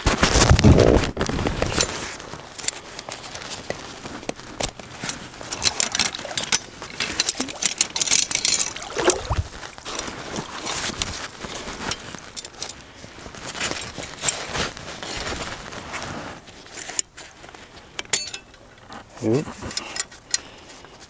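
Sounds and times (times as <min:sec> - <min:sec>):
water splashing around waders: 0:07.1 - 0:11.2.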